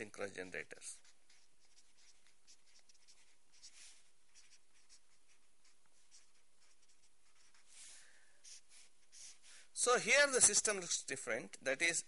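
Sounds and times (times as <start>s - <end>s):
marker scratching on paper: 0.4s - 9.6s.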